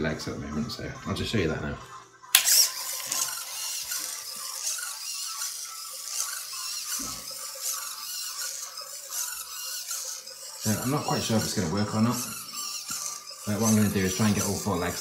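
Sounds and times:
servo motors buzzing: 0:00.0 - 0:15.0.

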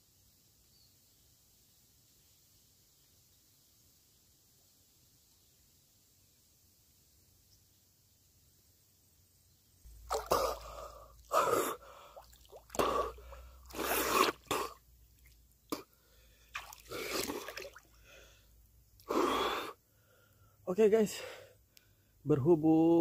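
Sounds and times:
water splashing and dripping: 0:09.9 - 0:15.8, 0:16.5 - 0:18.0
man gasping for breath: 0:10.2 - 0:14.8, 0:18.0 - 0:22.1.

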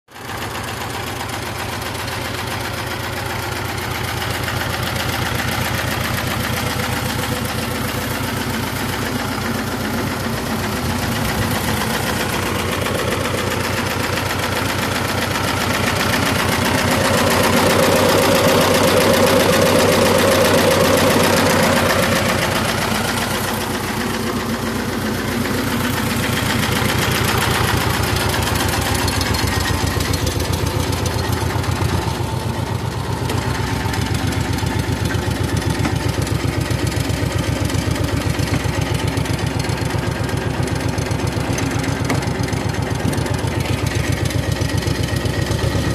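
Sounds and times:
tractor diesel engine chugging: 0:00.1 - 0:45.9.

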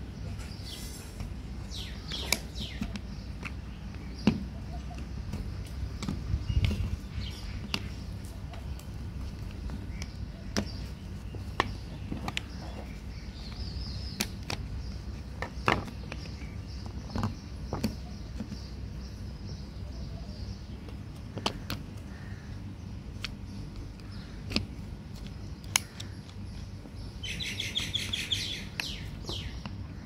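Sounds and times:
steady low hum: 0:00.0 - 0:30.0
screwdrivers clicking on plastic catches: 0:23.2 - 0:26.4.

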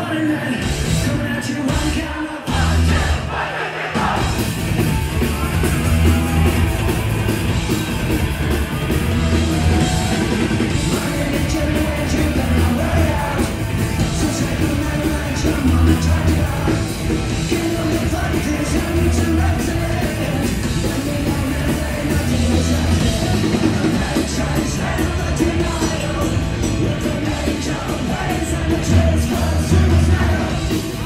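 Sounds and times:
punk rock band playing live: 0:00.0 - 0:31.0
person singing: 0:09.5 - 0:31.0.

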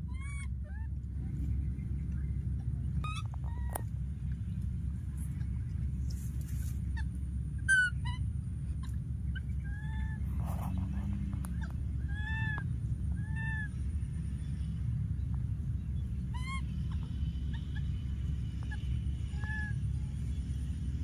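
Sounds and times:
high-pitched chirping animal calls: 0:00.0 - 0:01.0, 0:02.8 - 0:03.9, 0:06.9 - 0:14.0, 0:16.2 - 0:20.5
steady low rumble: 0:00.0 - 0:21.0.

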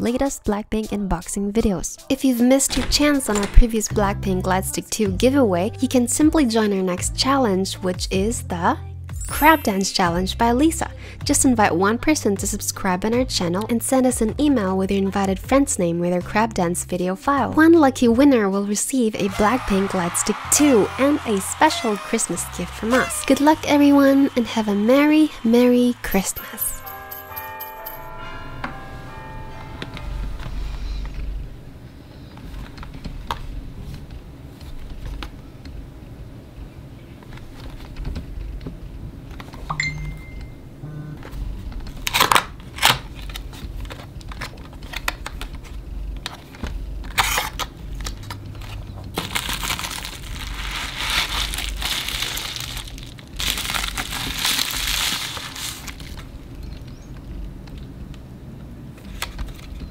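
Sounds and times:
paper and card rustling: 0:42.0 - 0:56.3
packaging crinkling: 0:47.2 - 0:56.3.

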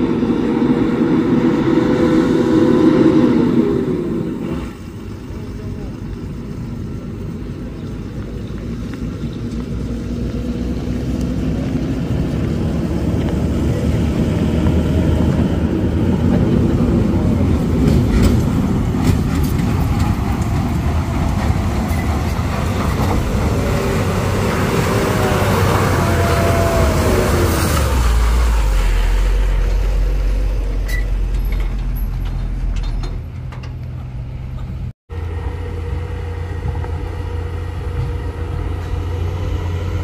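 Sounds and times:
rising whine: 0:00.0 - 0:08.0, 0:20.2 - 0:31.6
truck diesel engine climbing uphill: 0:00.0 - 0:40.0.

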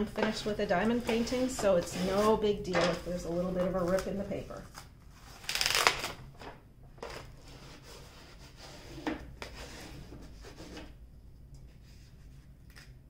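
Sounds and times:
paper sheet rustling and crinkling: 0:00.1 - 0:08.1.

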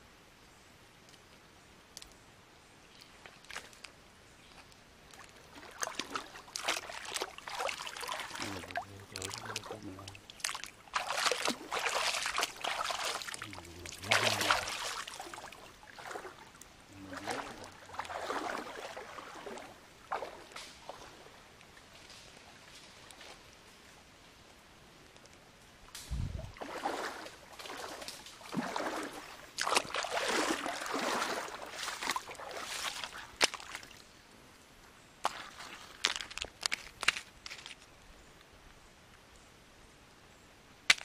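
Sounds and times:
stream water splashing: 0:02.9 - 0:23.6, 0:26.0 - 0:34.2, 0:35.2 - 0:37.8.

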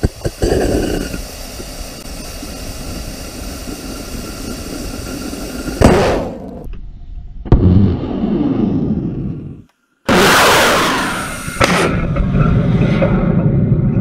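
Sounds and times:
rocket engine roaring: 0:00.0 - 0:06.7, 0:07.5 - 0:14.0
steady hiss: 0:00.0 - 0:06.7.

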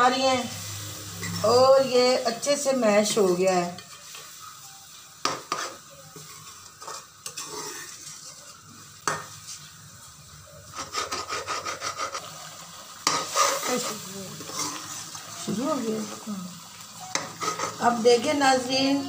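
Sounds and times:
faint sizzle: 0:00.0 - 0:19.0
metal ladle scraping pan: 0:00.7 - 0:01.8, 0:02.6 - 0:04.4, 0:05.2 - 0:09.6, 0:10.7 - 0:16.3, 0:17.0 - 0:18.3.

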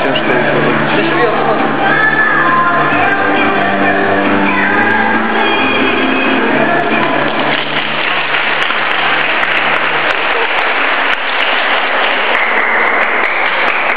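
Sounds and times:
music: 0:00.0 - 0:13.9
audience applauding: 0:06.4 - 0:13.9.

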